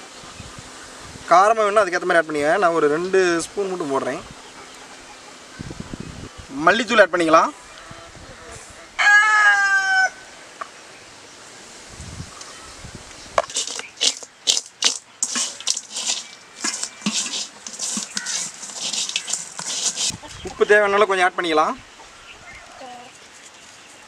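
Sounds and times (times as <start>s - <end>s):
chicken calling: 8.8s - 10.4s, 16.1s - 21.2s
crab pieces tossed in metal pot: 13.4s - 20.2s.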